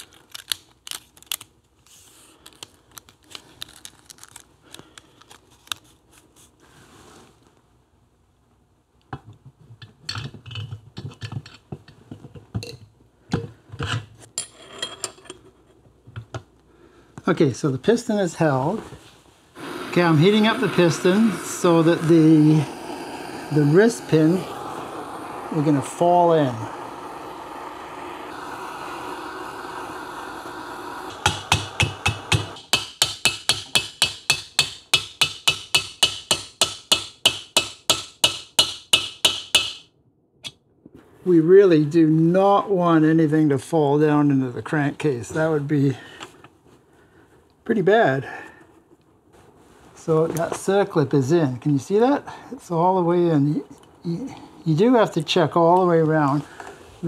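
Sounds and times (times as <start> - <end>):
propane torch hissing: 19.5 - 34.0, 56.0 - 57.0.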